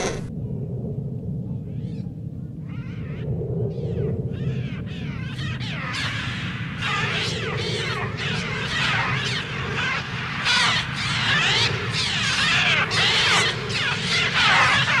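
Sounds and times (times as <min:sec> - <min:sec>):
electronic gull screeches: 0:00.0 - 0:00.3.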